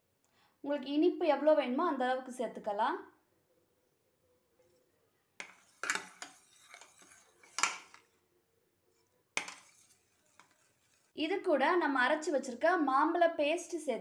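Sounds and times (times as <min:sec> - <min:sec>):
spoon scraping steel pan: 0:05.4 - 0:08.2, 0:08.9 - 0:11.2.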